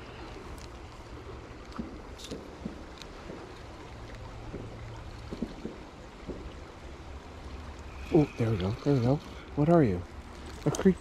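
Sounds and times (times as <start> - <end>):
creek running: 0.0 - 11.0
faint ticks: 0.3 - 0.8.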